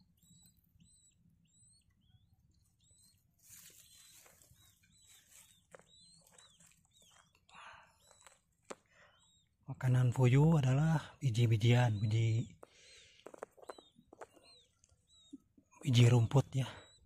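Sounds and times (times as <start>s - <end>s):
chicks peeping: 0.0s - 17.0s
dry grass rustling: 2.7s - 7.4s.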